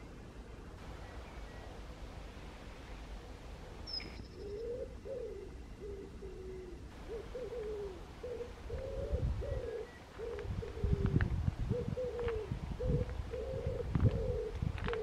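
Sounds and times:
pigeon cooing: 0:03.9 - 0:15.0.

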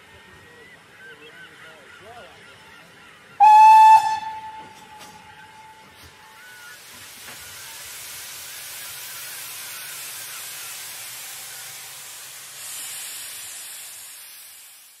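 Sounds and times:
steam locomotive hissing steam: 0:03.4 - 0:15.0.

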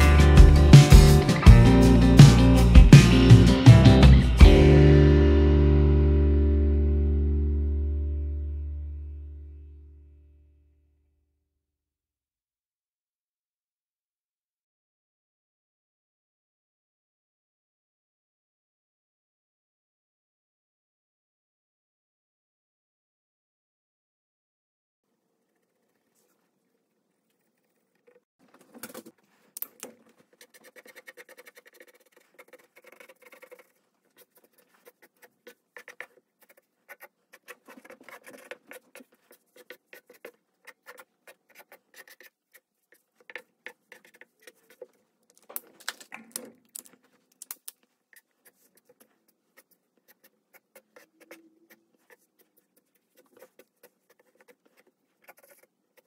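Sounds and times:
marker scratching on paper: 0:25.5 - 0:56.0.

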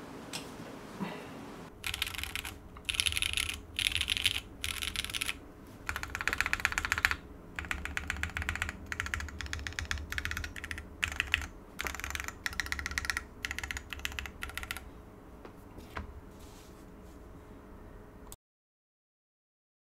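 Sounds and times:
mechanical keyboard typing: 0:01.8 - 0:14.8.

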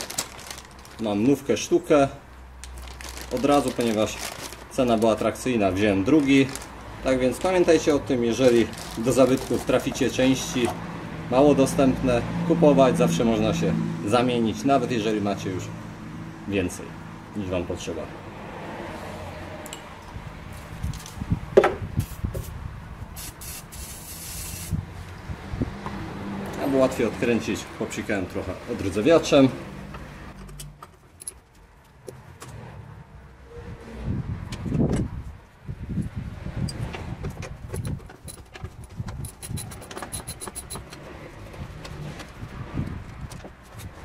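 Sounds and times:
aerosol spray can hissing: 0:23.2 - 0:24.7
hand tools clinking on metal: 0:37.8 - 0:41.0
ratchet wrench clicking rapidly: 0:39.2 - 0:40.9.

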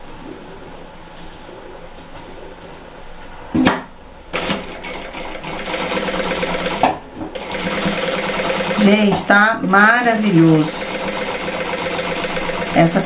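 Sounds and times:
sewing machine stitching: 0:04.4 - 0:06.8, 0:07.4 - 0:09.0, 0:10.0 - 0:13.0.

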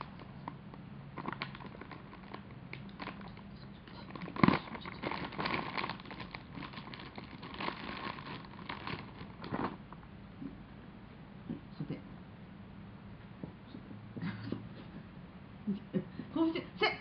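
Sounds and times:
dog crunching a treat: 0:01.2 - 0:09.8.

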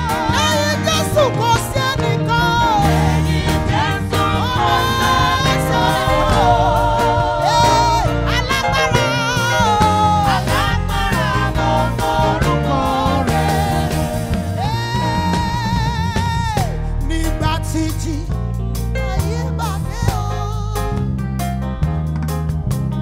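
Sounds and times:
singers with vibrato: 0:00.0 - 0:16.9
band with drums and bass: 0:00.0 - 0:23.0.

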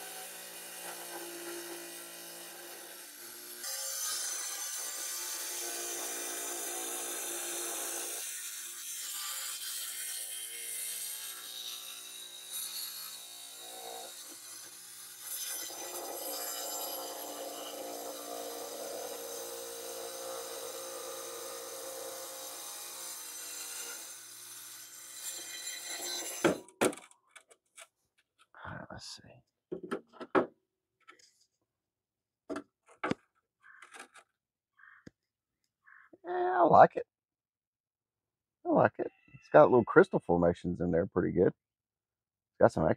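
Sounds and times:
tile saw grinding stone: 0:00.0 - 0:26.8
sharp knocks: 0:29.7 - 0:30.5.

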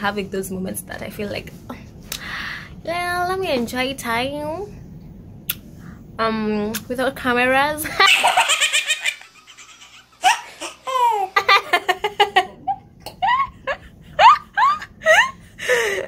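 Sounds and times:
baby laughing: 0:08.0 - 0:13.6
woman laughing heartily: 0:10.2 - 0:16.0.

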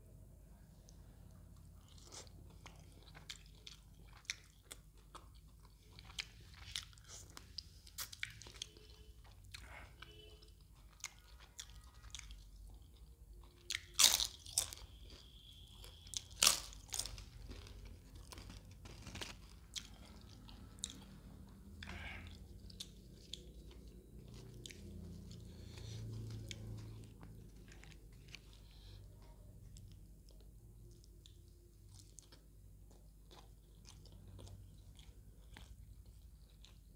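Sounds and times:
quiet chewing: 0:00.7 - 0:36.9
crisp food crunches: 0:16.2 - 0:20.0.

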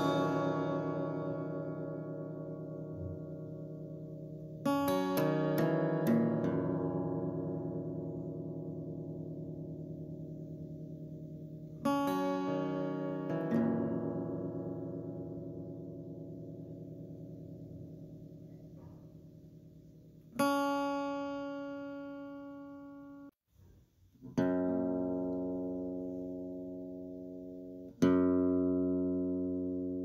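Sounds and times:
slow plucked guitar chords: 0:00.0 - 0:23.4, 0:24.3 - 0:30.0.

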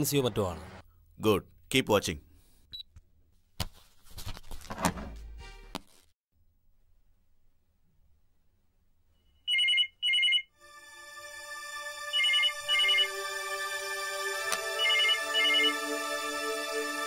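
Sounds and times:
electronic telephone ringing: 0:09.5 - 0:10.6, 0:12.1 - 0:13.2, 0:14.8 - 0:15.8
background music: 0:10.6 - 0:17.0.

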